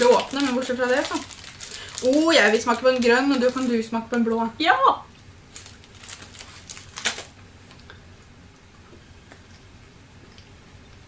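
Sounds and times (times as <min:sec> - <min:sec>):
candy bag crinkling: 0:00.0 - 0:04.6, 0:05.3 - 0:07.9.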